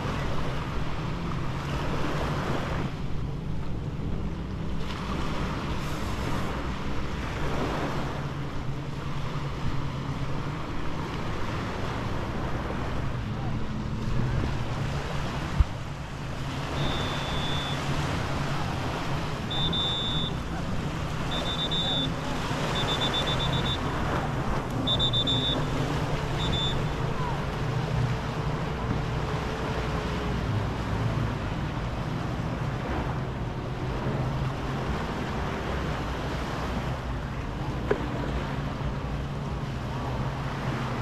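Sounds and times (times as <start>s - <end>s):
low engine hum: 0.0s - 41.0s
surf washing onto sand: 4.7s - 37.2s
short high beeps: 16.6s - 17.9s, 19.4s - 20.4s, 21.2s - 23.9s, 24.8s - 25.7s, 26.3s - 27.0s.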